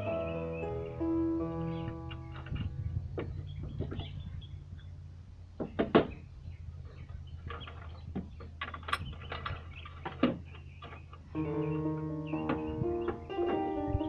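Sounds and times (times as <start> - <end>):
guitar music: 0.0 - 2.4, 11.4 - 14.0
low steady hum: 0.0 - 14.0
metal hardware clicks and knocks: 1.8 - 4.2, 7.1 - 11.4.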